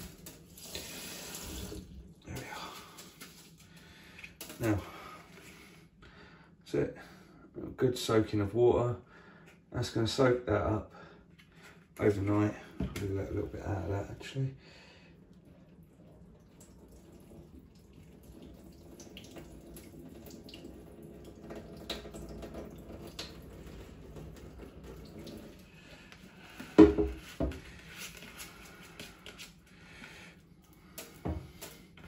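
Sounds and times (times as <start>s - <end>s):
water trickling into sink: 15.2s - 26.7s.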